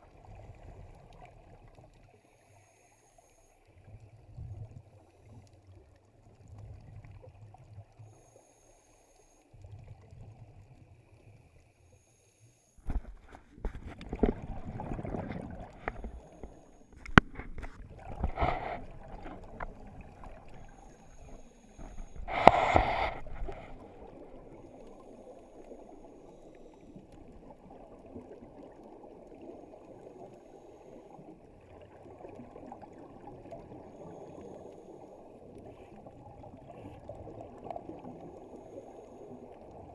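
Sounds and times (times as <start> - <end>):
regulator bubbles gurgling underwater: 0.0 - 2.4, 12.8 - 39.9
low steady wash of water: 0.0 - 39.9.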